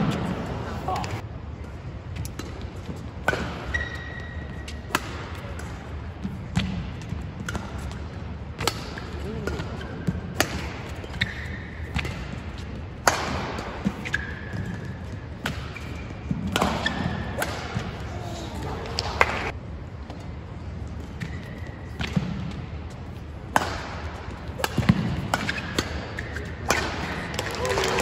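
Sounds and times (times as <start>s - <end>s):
shoes squeaking on court: 2.1s - 8.1s, 8.9s - 12.9s, 13.6s - 19.1s, 20.1s - 23.4s, 24.2s - 27.2s
rackets striking shuttlecock: 2.1s - 18.1s, 23.5s - 27.6s.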